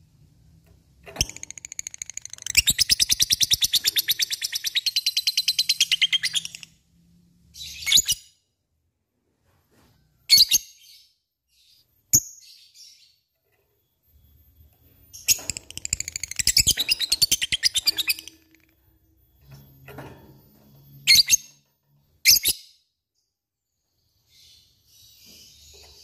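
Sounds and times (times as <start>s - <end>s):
lovebird sharp chirps: 15.1s - 18.7s.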